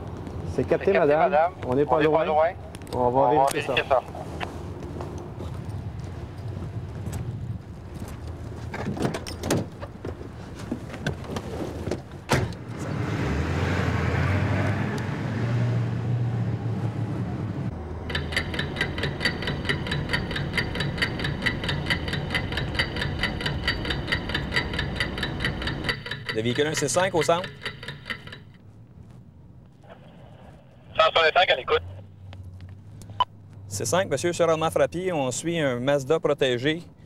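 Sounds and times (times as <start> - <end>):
car engine running: 18.0 - 27.2
fast ticking with ringing tone: 18.0 - 28.6.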